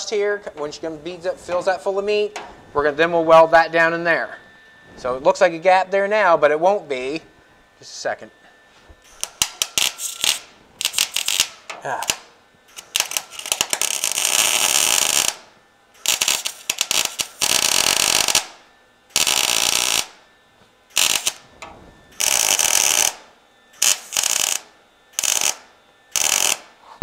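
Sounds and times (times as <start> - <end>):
welder arc tacks: 9.0 - 15.4, 16.0 - 18.6, 19.2 - 20.2, 20.9 - 23.2, 23.8 - 24.6, 25.2 - 26.7.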